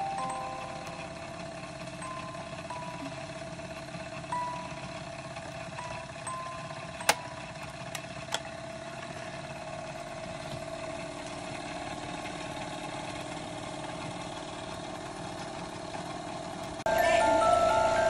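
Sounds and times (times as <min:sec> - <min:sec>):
toy steam engine whirring: 0:00.0 - 0:08.4, 0:16.9 - 0:18.0.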